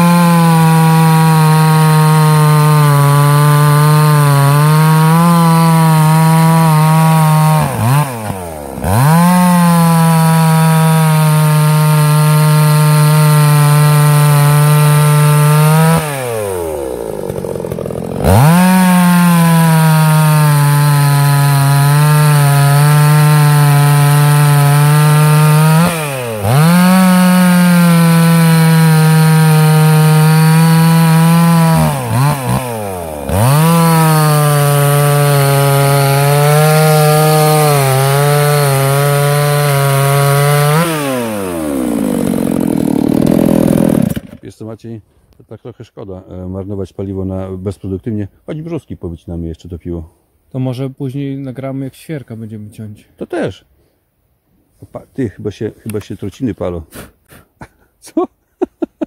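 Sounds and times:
chainsaw cutting log: 0.0 - 44.5.

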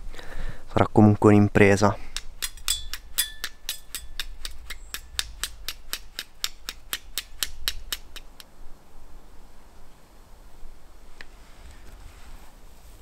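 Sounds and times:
flint striking steel clicks: 2.1 - 8.5.

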